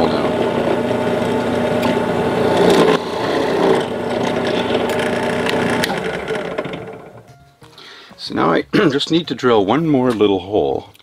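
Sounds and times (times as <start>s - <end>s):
drill press boring through wood: 0.0s - 7.3s.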